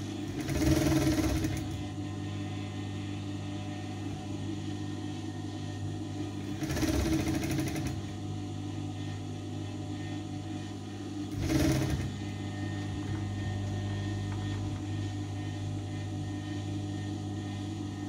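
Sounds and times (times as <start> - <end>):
sewing machine stitching: 0.0 - 1.8, 6.5 - 8.0, 11.3 - 12.3
steady low hum: 0.0 - 18.0.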